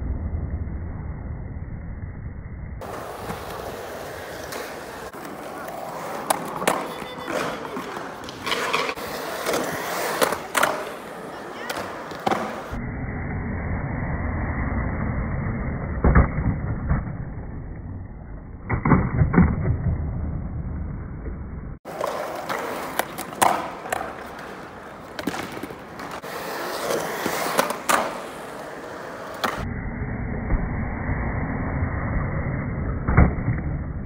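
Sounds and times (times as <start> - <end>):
skateboard wheels rolling on concrete: 0.0 - 34.0
skateboard clacks and thuds: 2.8 - 12.8, 21.8 - 28.5.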